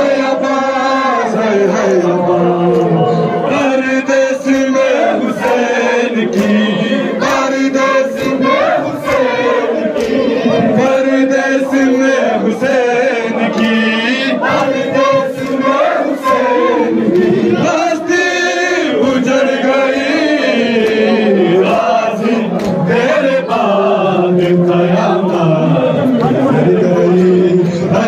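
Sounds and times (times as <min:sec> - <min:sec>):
men chanting in unison: 0:00.0 - 0:28.0
hands slapping chests: 0:02.7 - 0:03.1, 0:04.5 - 0:10.9, 0:22.5 - 0:23.7.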